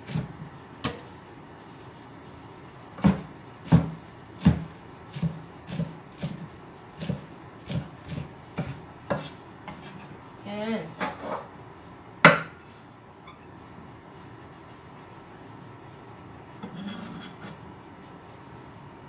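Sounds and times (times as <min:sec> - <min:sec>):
knife chopping on wooden block: 0:03.0 - 0:06.4.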